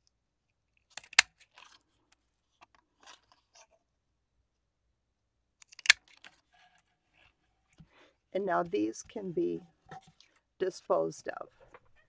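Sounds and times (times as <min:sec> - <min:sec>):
paper rustling: 0:01.0 - 0:03.7
hole punch snapping through card: 0:05.6 - 0:06.0.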